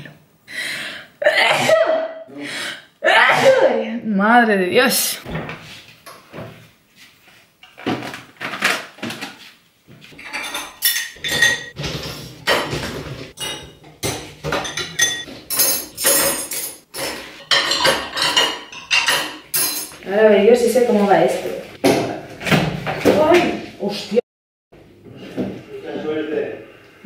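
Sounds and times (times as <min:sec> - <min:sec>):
dishes clattering into dishwasher racks: 0:10.1 - 0:23.4.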